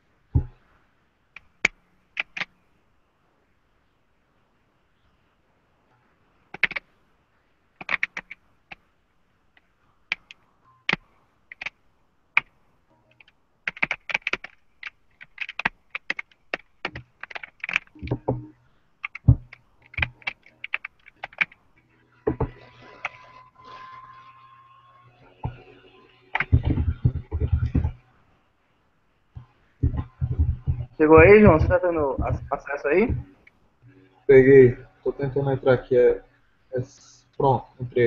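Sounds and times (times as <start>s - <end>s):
typing on computer keyboard: 1.4s - 2.5s, 6.5s - 6.8s, 7.8s - 8.8s, 10.1s - 11.8s, 13.1s - 21.6s, 22.3s - 23.3s, 26.3s - 28.0s, 29.8s - 33.2s.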